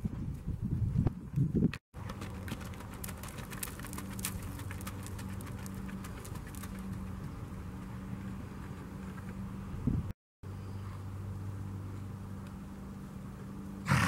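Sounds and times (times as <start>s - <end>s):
hooves thudding in dirt: 0.0s - 10.1s
distant hooves clip-clop: 1.0s - 9.8s
steady low hum: 2.0s - 14.0s.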